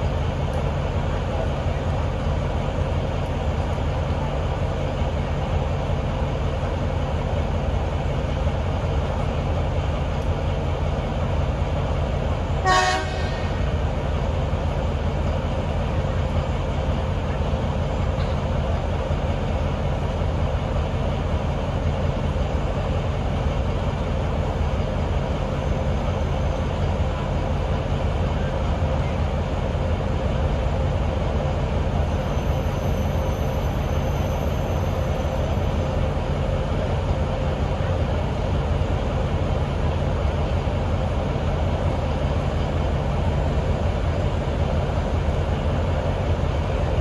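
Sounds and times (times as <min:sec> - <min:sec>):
diesel locomotive engine running: 0:00.0 - 0:47.0
locomotive horn toot: 0:12.6 - 0:13.6.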